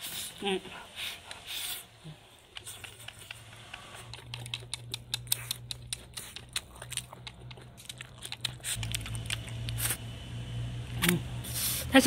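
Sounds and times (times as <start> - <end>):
person chewing: 2.5 - 10.0
chopsticks clicking against bowl: 4.1 - 9.8.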